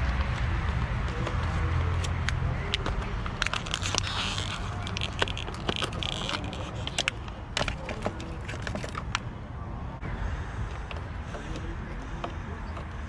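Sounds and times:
plastic packaging crinkling: 3.3s - 9.0s.

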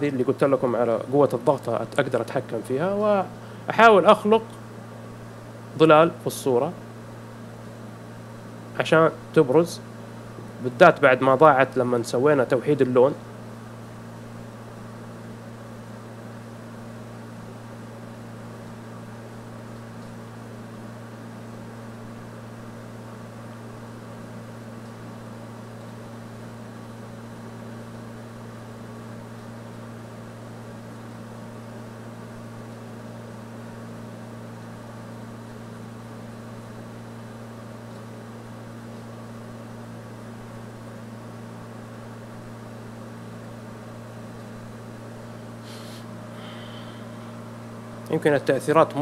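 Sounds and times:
constant hiss: 43.6s - 49.0s.

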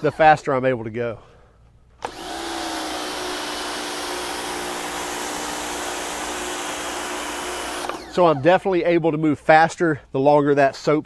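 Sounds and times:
pressure washer motor whine: 2.0s - 8.4s.

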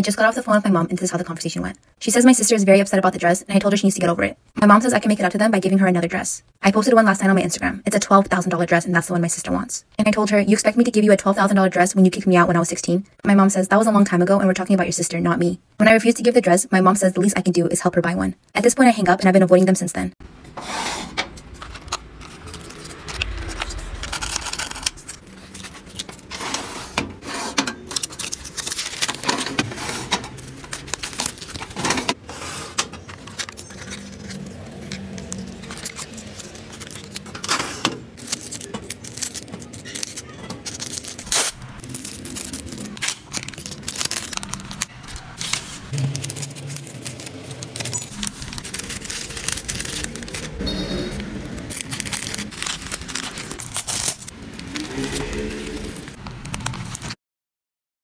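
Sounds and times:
packaging rustling and scraping: 20.5s - 57.2s
plastic items clattering: 21.0s - 57.2s.

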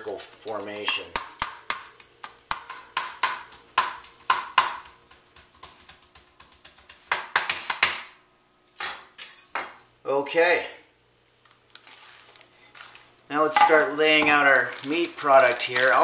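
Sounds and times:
knife chopping on plastic board: 0.9s - 8.1s.

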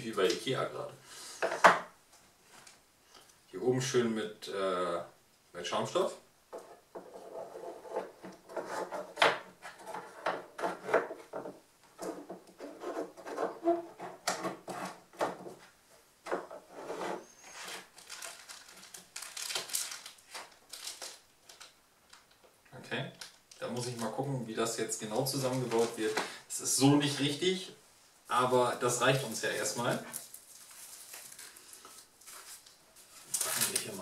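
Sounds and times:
wood knocking and scraping on wood: 1.4s - 1.9s, 6.5s - 17.9s
plastic bag rustling: 17.2s - 22.4s, 25.0s - 27.4s, 28.9s - 34.0s.

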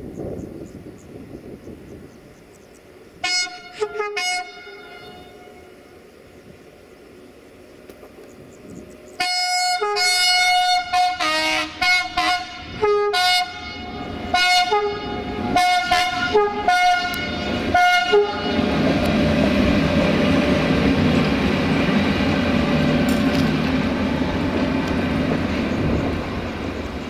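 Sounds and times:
locomotive rolling past: 0.0s - 27.0s
locomotive horn two-tone blasts: 3.2s - 5.9s, 9.2s - 18.8s.

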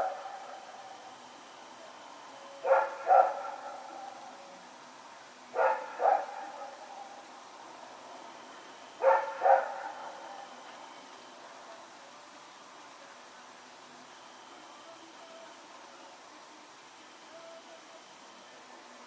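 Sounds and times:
dog barking: 0.0s - 0.6s, 2.6s - 4.2s, 5.6s - 7.2s, 9.0s - 10.5s.

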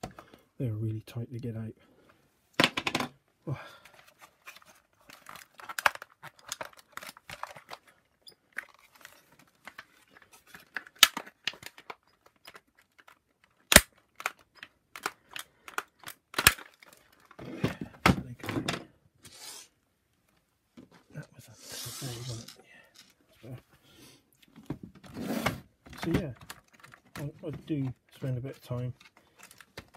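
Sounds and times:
hard plastic parts clicking and knocking: 2.6s - 3.2s, 10.5s - 18.9s, 25.8s - 29.9s.

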